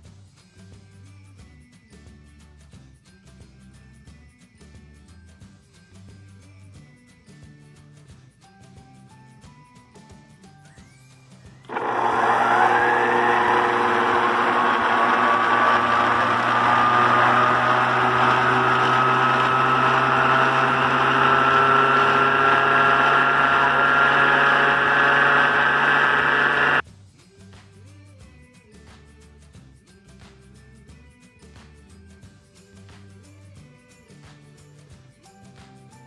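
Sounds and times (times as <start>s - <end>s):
stand mixer motor whining: 11.7s - 26.8s.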